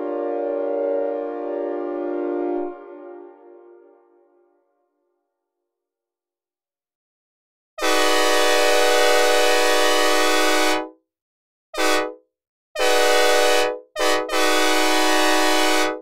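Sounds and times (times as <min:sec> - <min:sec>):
locomotive air horn blasts: 0:00.0 - 0:03.8, 0:07.8 - 0:10.9, 0:11.8 - 0:12.2, 0:12.8 - 0:16.0.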